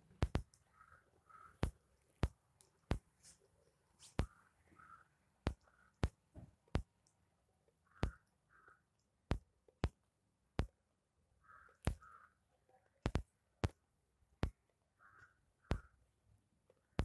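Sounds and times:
sharp irregular clicks: 0.0 - 3.1, 4.2 - 10.8, 11.5 - 12.3, 13.0 - 13.8, 14.4 - 16.0.

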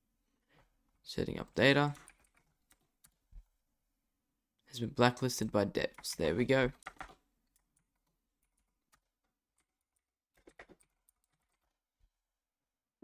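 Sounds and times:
faint keyboard typing: 1.4 - 3.5, 5.8 - 11.9.

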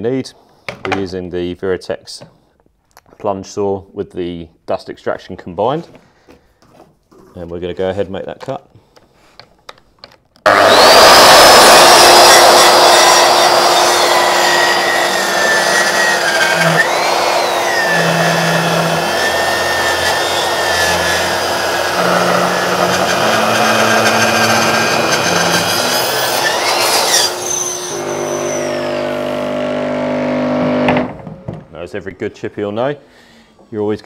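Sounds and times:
saw winding down: 10.5 - 31.1
circular saw cutting wood: 10.5 - 31.2
dust extractor running: 10.5 - 31.6.

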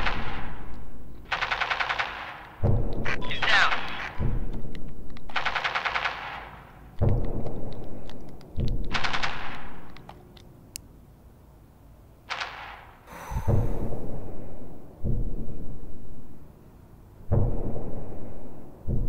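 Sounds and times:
video game automatic gunfire: 1.2 - 4.6, 5.2 - 7.8, 8.6 - 9.9.

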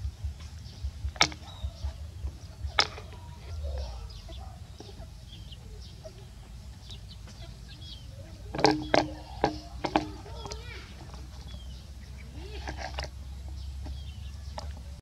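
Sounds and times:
faint bird chirps: 0.1 - 12.6
bowl rubbing and bumping: 0.9 - 3.9, 8.4 - 11.3, 12.6 - 13.2
plastic bowl knocking: 1.0 - 3.2, 8.5 - 10.6.

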